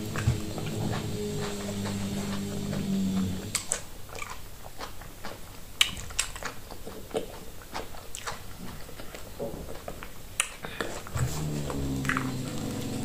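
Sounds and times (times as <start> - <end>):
low steady hum: 0.0 - 4.1, 10.8 - 13.0
mouth chewing with smacks: 0.0 - 13.0.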